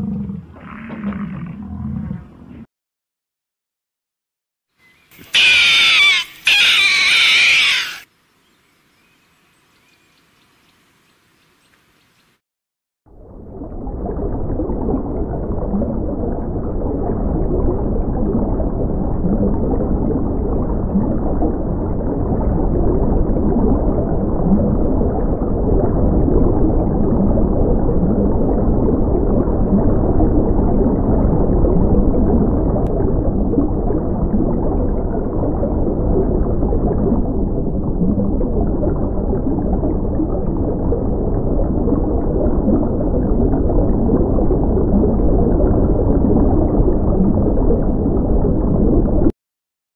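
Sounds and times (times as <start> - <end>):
muffled underwater water rush: 13.1 - 49.3.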